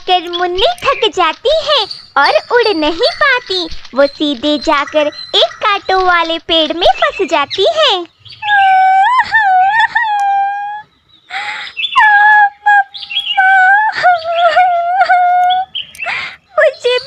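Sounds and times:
child crying in wavering wails: 8.4s - 10.8s, 12.0s - 15.7s
sobbing breath: 11.3s - 11.8s, 16.0s - 16.5s.

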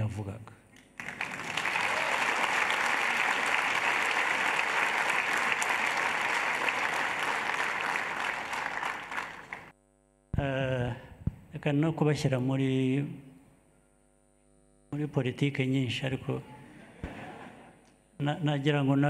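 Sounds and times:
audience applauding: 0.9s - 9.7s.

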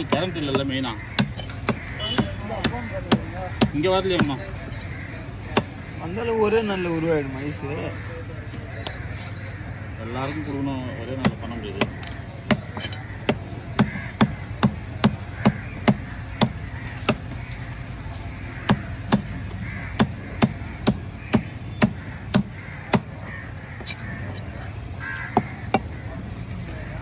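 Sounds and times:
knife chopping fish on wood: 0.0s - 4.5s, 5.5s - 5.8s, 11.2s - 17.5s, 18.6s - 23.2s, 25.3s - 25.9s.

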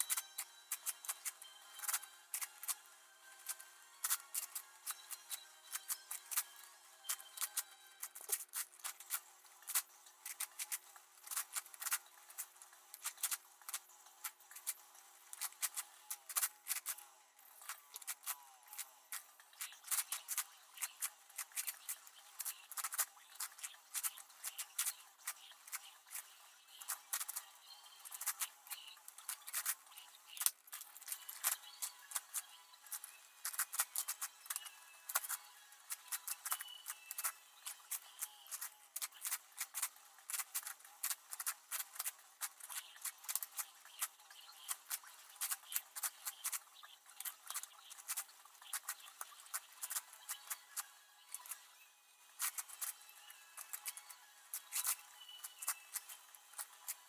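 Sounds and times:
puzzle cube clicking: 3.4s - 17.0s, 17.6s - 46.6s.

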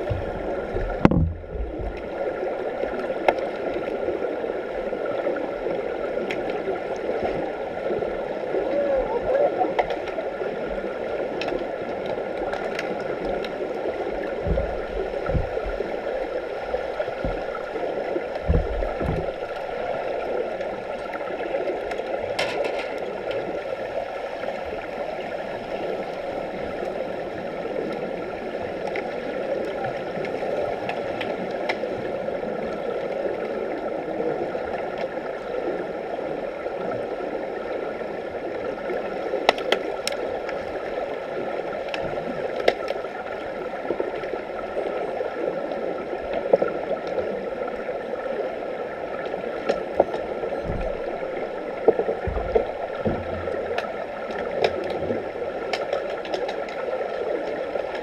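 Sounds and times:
low thuds: 0.0s - 2.0s, 14.4s - 16.4s, 18.4s - 19.6s
sharp clicks and knocks: 0.0s - 2.0s
underwater rushing water: 0.0s - 58.0s.

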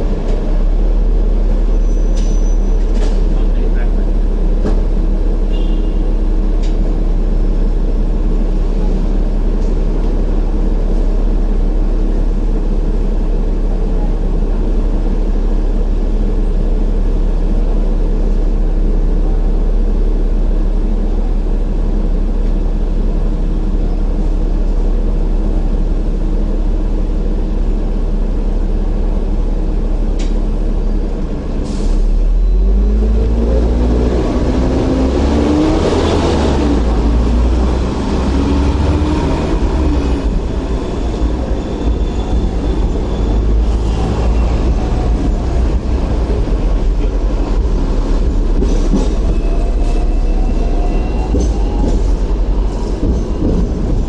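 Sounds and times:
tram electrical hum: 0.0s - 54.0s.

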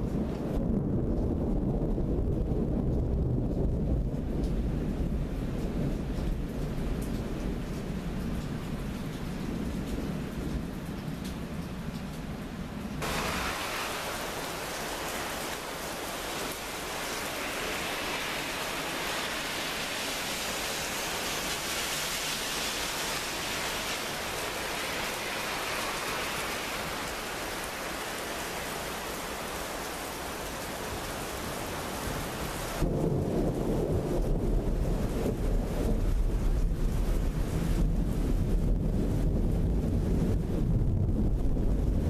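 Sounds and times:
heavy rain hissing: 13.0s - 34.0s
wind buffeting microphone: 32.7s - 42.0s.

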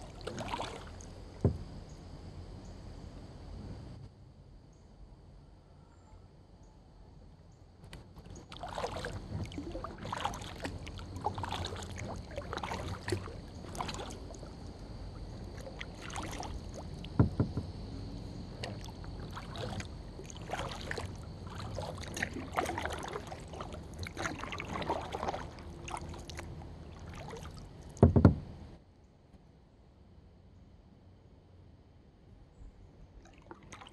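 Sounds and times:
kayak paddle strokes in water: 0.0s - 1.8s, 7.9s - 28.5s, 33.3s - 33.9s.

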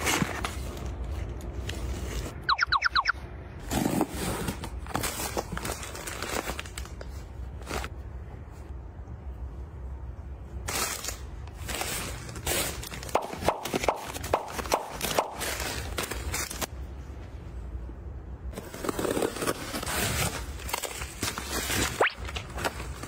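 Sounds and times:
rustling handling noise: 0.0s - 2.5s.

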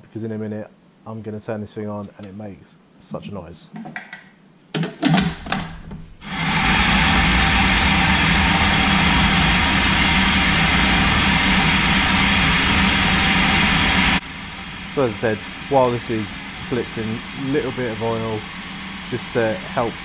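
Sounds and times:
food processor motor running: 6.2s - 20.0s.

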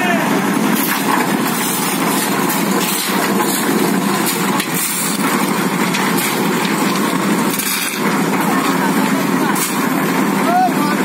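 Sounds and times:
concrete mixer running: 0.0s - 11.0s.

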